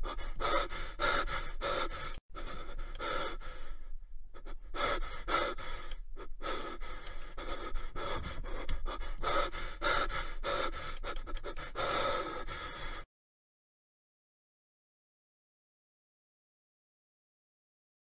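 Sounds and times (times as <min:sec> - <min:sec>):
heavy breathy panting: 0:00.0 - 0:13.1.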